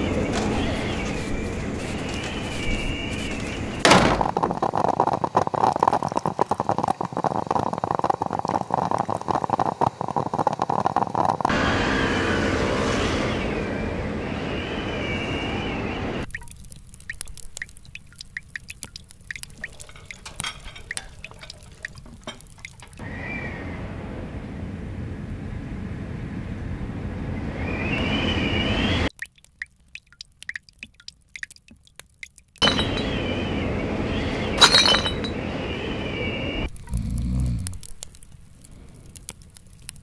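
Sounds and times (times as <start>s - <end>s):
hiss with high whistles: 0.0s - 3.8s, 4.6s - 16.3s, 23.0s - 24.4s, 27.3s - 29.1s, 32.6s - 36.7s
water pouring: 0.1s - 11.5s, 16.2s - 23.0s, 29.1s - 33.0s
small water drips and clicks: 4.3s - 11.5s, 16.3s - 23.0s, 29.1s - 32.6s, 36.7s - 40.0s.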